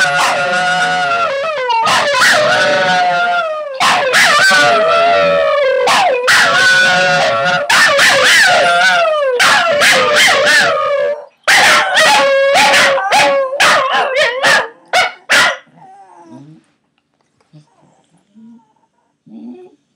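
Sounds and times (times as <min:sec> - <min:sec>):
dogs howling: 0:00.0 - 0:15.1.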